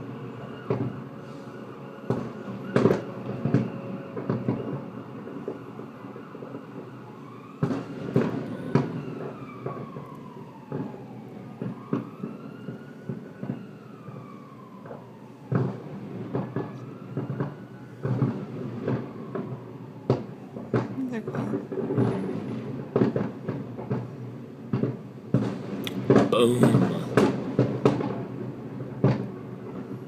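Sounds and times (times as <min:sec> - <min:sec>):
siren wailing: 0:00.0 - 0:22.8.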